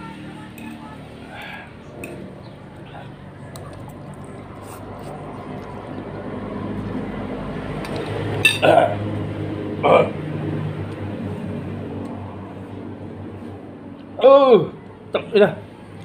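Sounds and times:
low hum: 0:00.0 - 0:16.0
man coughing: 0:08.6 - 0:09.0.

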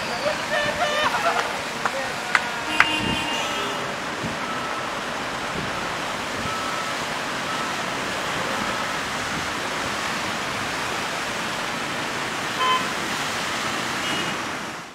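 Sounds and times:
car horn beep: 0:00.0 - 0:01.4, 0:02.6 - 0:04.9, 0:12.6 - 0:12.9, 0:14.0 - 0:14.5
tyres spraying water: 0:00.0 - 0:14.9.

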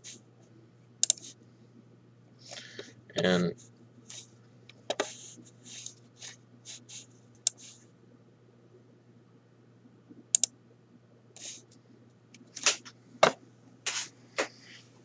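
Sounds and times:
low steady hum: 0:00.0 - 0:15.0
computer mouse clicking: 0:01.0 - 0:01.3, 0:06.7 - 0:07.8, 0:10.3 - 0:10.5.

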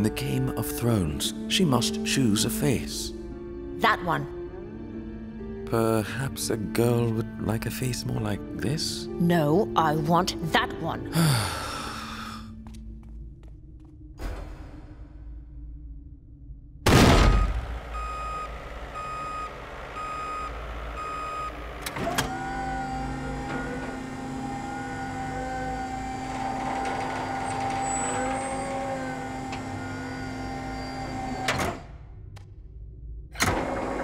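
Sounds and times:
electronic warning beeps: 0:17.4 - 0:21.6
electric motor whining: 0:17.6 - 0:31.8.

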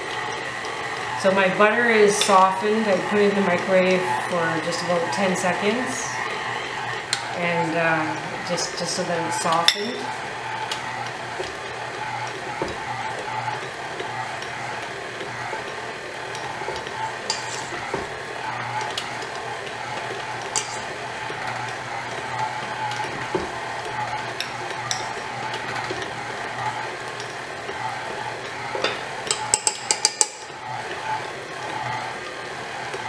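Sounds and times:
stand mixer motor hum: 0:00.0 - 0:33.0
utensil clinking against bowl: 0:28.8 - 0:30.5.

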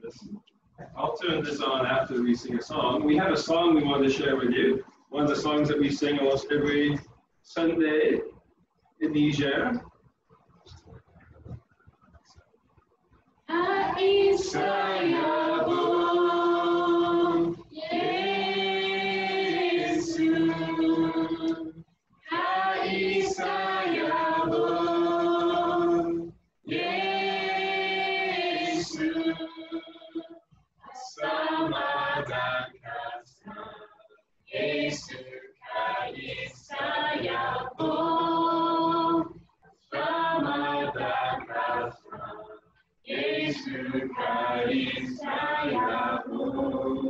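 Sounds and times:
group singing unaccompanied: 0:13.5 - 0:47.0.

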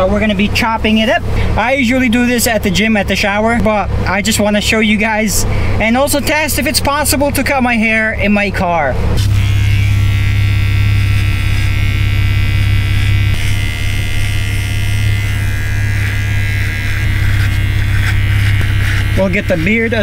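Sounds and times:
hair trimmer buzzing: 0:09.2 - 0:20.0.

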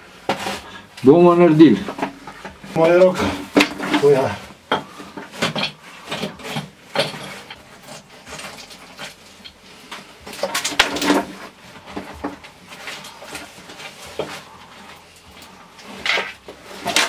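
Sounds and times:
stones clattering and scraping: 0:01.8 - 0:17.0.

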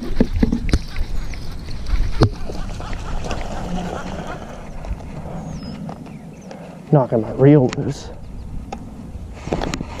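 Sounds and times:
wind rumble on microphone: 0:00.0 - 0:06.5, 0:07.2 - 0:10.0.

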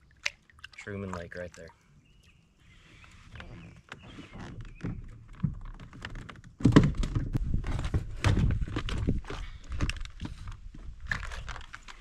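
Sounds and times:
rummaging with thumps and rustling: 0:03.3 - 0:12.0.

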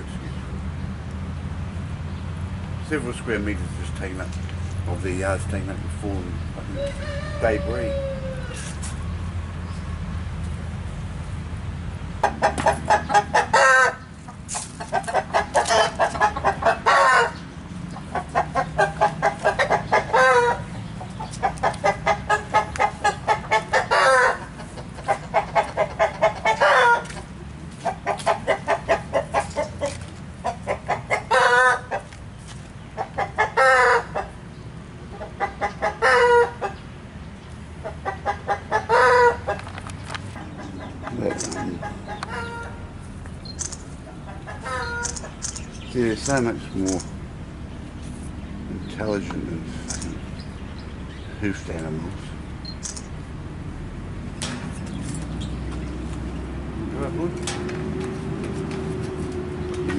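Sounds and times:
bird cackling: 0:06.6 - 0:08.8, 0:12.2 - 0:32.2, 0:32.8 - 0:36.9, 0:37.8 - 0:47.1.

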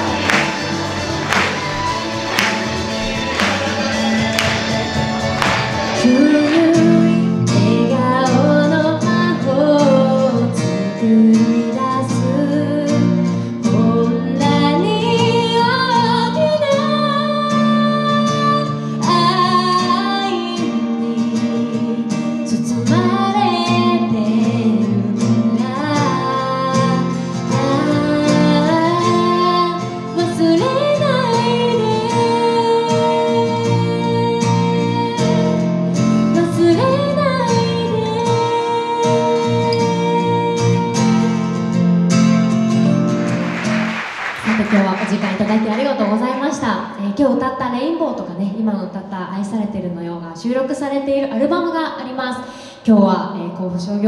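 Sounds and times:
instrumental accompaniment: 0:00.0 - 0:08.5, 0:40.9 - 0:46.6
woman singing pop ballad: 0:05.8 - 0:41.6.

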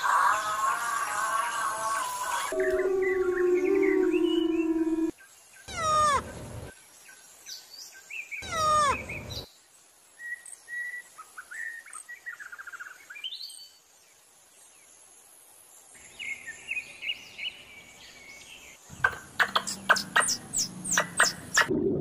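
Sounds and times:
bird chirps and trills: 0:02.5 - 0:07.1, 0:08.2 - 0:09.5, 0:18.5 - 0:21.7
squeaky falling chirps: 0:05.7 - 0:06.4.

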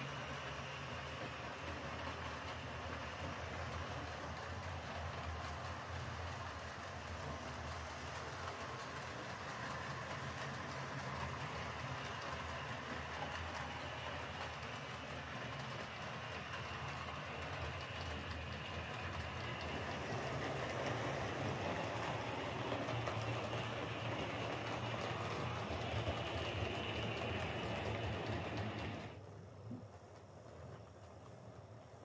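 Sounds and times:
model train motor hum: 0:00.0 - 0:29.2
wheels running on rails: 0:00.0 - 0:32.0.

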